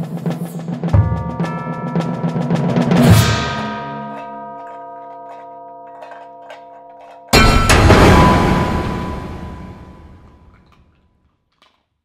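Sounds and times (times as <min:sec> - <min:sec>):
drum roll: 0:00.0 - 0:04.2, 0:07.4 - 0:10.6
bell-like chord ringing: 0:01.1 - 0:10.5
cymbal crash: 0:07.4 - 0:10.5.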